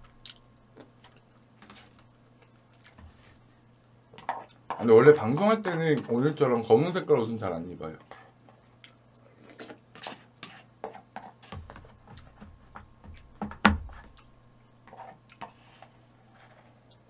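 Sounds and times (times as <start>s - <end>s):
person chewing: 0.0s - 3.2s.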